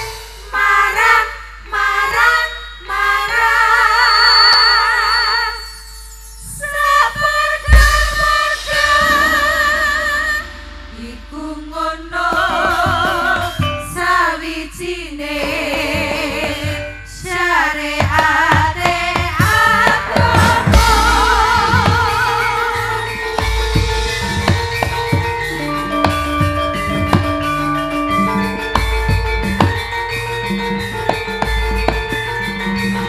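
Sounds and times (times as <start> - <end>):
percussion strikes: 0.0 - 33.0
women singing together: 0.5 - 5.6, 6.6 - 23.5
low drum thumps: 7.7 - 13.9, 18.0 - 27.6, 28.7 - 29.9.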